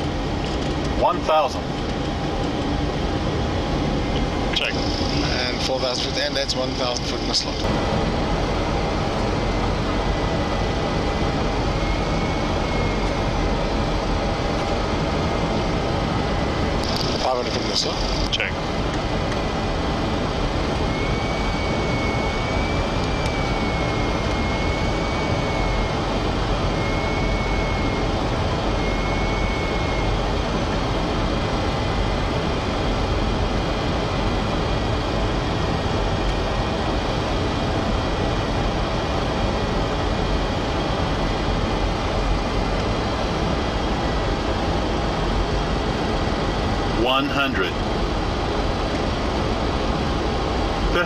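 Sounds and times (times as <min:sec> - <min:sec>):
airflow and engine noise in cockpit: 0:00.0 - 0:51.0
faint wavering high whistle: 0:20.9 - 0:26.1, 0:28.7 - 0:30.2.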